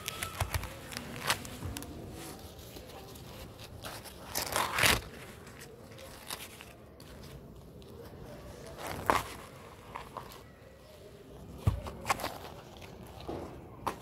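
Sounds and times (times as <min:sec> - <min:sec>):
corn husk crackling and rustling: 0:00.0 - 0:10.6
husk tearing rip: 0:04.2 - 0:05.2.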